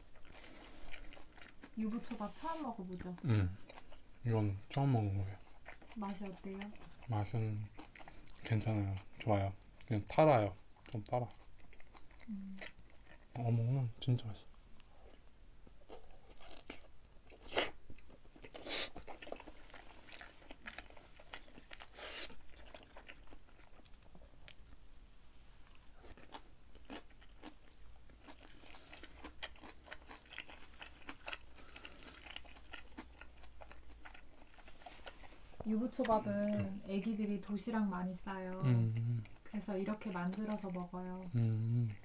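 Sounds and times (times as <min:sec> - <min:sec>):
food crunching: 0:00.0 - 0:02.2, 0:02.8 - 0:10.2, 0:10.8 - 0:13.8, 0:14.9 - 0:24.8, 0:25.6 - 0:37.6
chewing clicks: 0:26.2 - 0:34.6.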